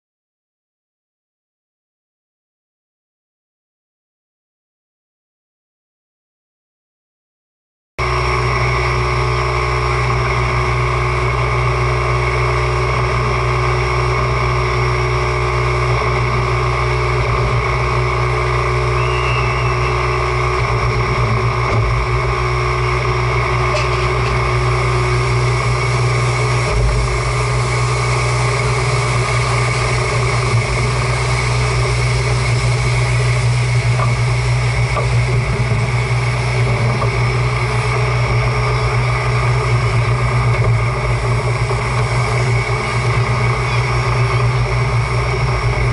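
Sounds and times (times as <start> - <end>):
steam locomotive humming: 8.0 - 45.9
steam hissing: 18.9 - 21.6, 22.4 - 45.9.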